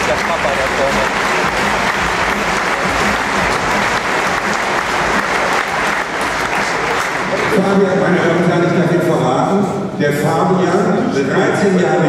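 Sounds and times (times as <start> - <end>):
large audience applauding: 0.0 - 7.8.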